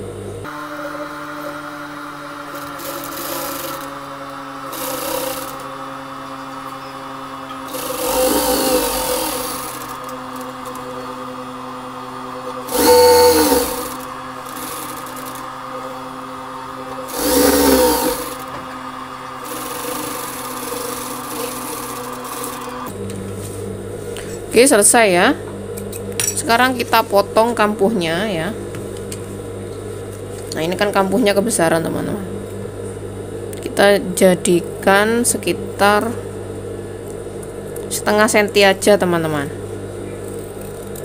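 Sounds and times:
sewing machine stitching: 0.7 - 5.8, 6.4 - 10.9, 12.5 - 15.6, 16.9 - 18.6, 19.3 - 22.9.

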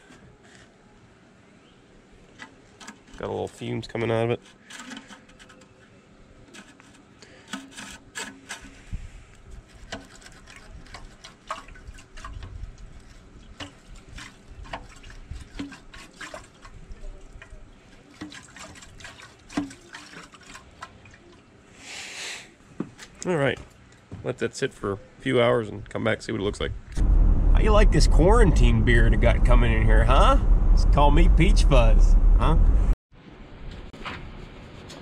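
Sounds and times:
liquid sloshing in metal tank: 9.8 - 21.5.

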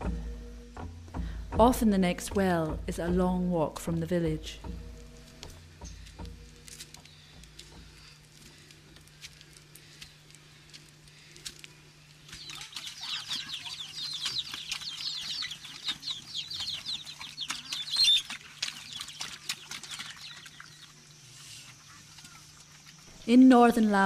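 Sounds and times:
chicks cheeping: 12.2 - 23.0
pigs feeding at wooden trough: 12.2 - 23.2.

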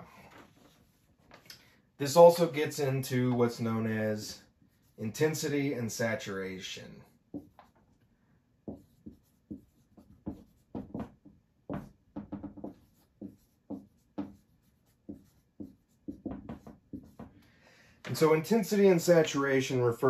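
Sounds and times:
pen scratching while writing: 8.7 - 11.2, 12.6 - 17.3.

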